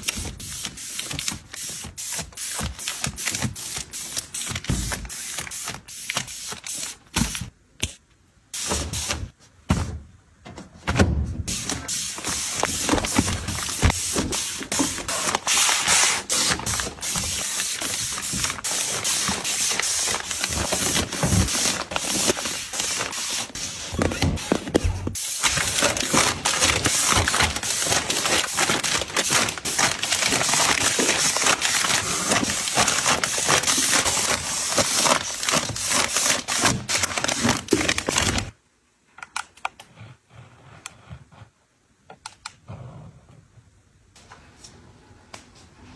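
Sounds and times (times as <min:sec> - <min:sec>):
plastic packs crinkling: 0:11.9 - 0:38.6.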